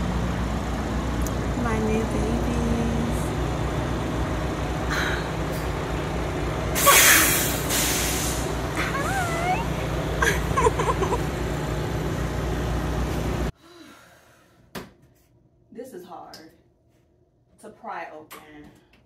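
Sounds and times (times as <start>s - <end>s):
vehicle rumble from inside: 0.0s - 13.6s
loud hissing burst: 6.8s - 8.6s.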